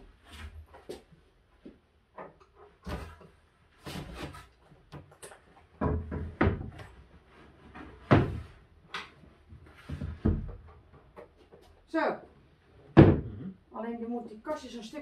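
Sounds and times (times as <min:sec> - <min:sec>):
plywood sheet knocking and thudding: 0:05.8 - 0:07.0, 0:07.7 - 0:08.6, 0:09.8 - 0:10.7, 0:12.9 - 0:13.4.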